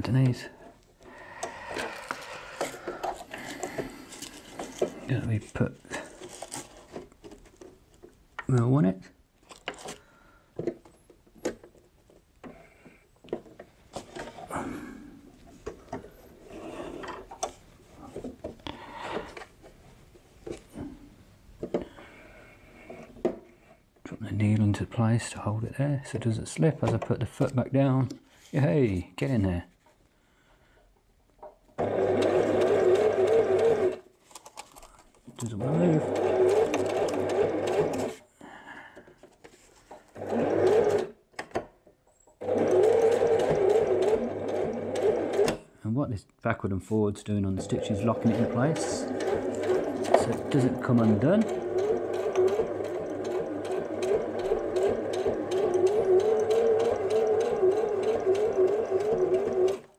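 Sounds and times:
fabric rubbing on sewing machine: 35.6 - 38.2, 47.6 - 59.8.

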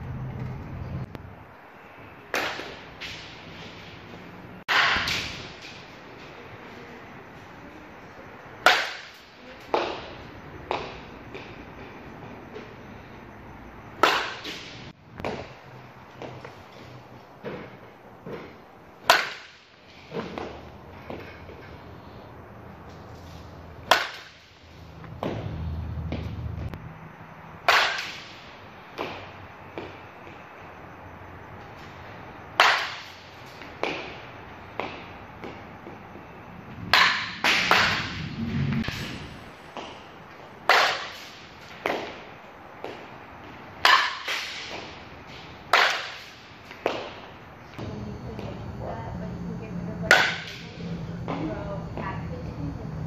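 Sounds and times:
bat striking softball: 2.3 - 3.3, 4.7 - 5.8, 8.6 - 10.0, 14.0 - 15.5, 19.0 - 20.5, 23.8 - 24.5, 27.6 - 30.0, 32.6 - 34.2, 36.8 - 40.0, 40.6 - 42.2, 43.8 - 47.3, 50.1 - 50.8
low hum: 35.8 - 39.7, 47.6 - 53.0.

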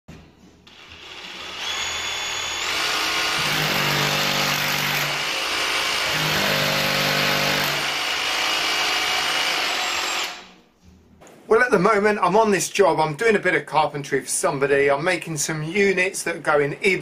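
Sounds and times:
drill hammer-drilling into masonry: 0.7 - 10.5.

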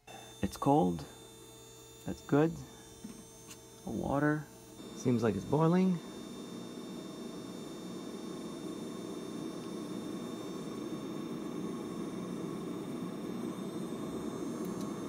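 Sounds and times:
water boiling in tank: 3.8 - 15.0.

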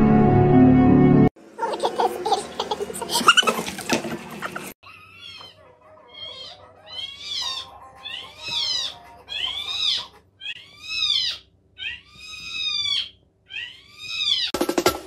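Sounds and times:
cat meowing: 4.8 - 14.6.

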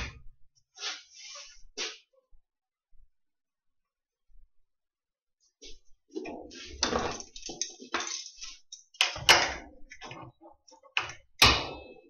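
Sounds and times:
sheet metal rattling and crackling: 6.2 - 11.8.

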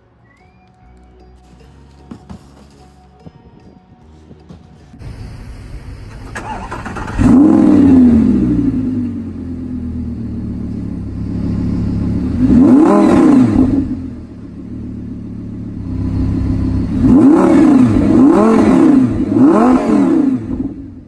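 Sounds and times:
sports car engine revving: 5.0 - 21.0.

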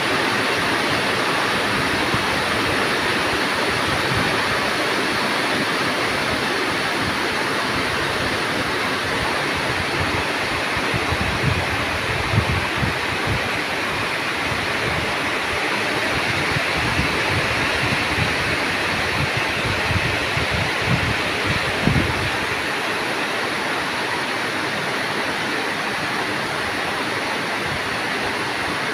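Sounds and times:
heavy rain on forest canopy: 0.0 - 28.9.

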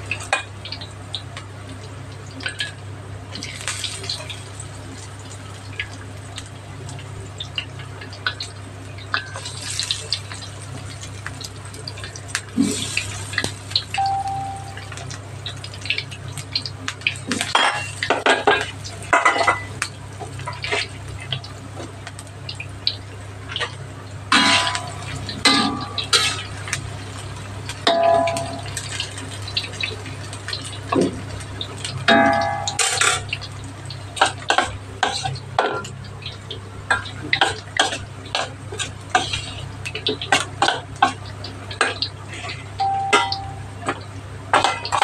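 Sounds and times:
food sizzling in hot oil: 0.0 - 45.0
metal spatula clinking on wok: 42.8 - 43.6.

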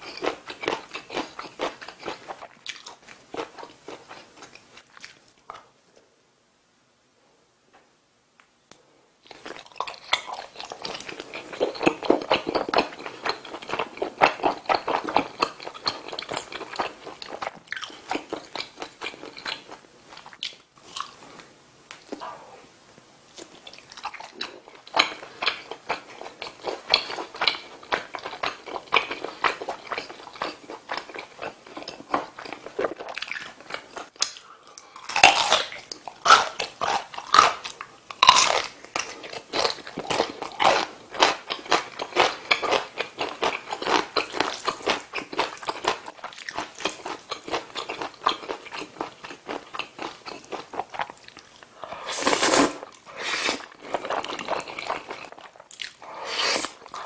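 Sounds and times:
mouth chewing soft food: 23.3 - 57.0.

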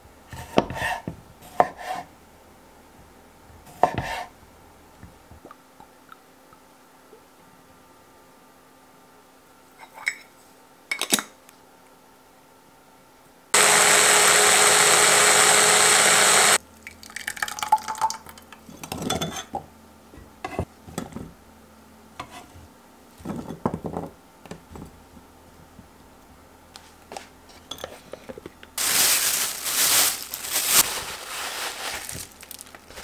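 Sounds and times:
hand blender running: 13.6 - 16.6.

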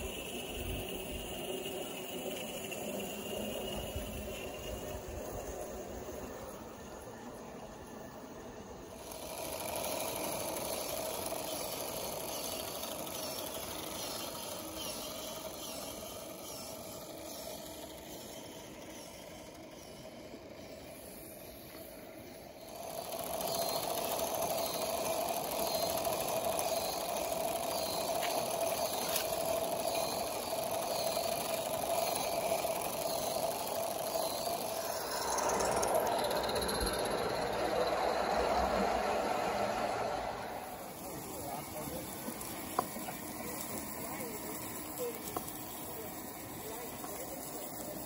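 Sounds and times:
small steam train running: 0.0 - 48.0
light regular ticking: 22.6 - 39.2.

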